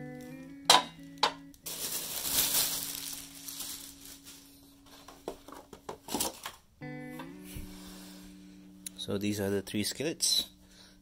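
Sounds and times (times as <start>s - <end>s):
pans knocking: 0.7s - 1.4s.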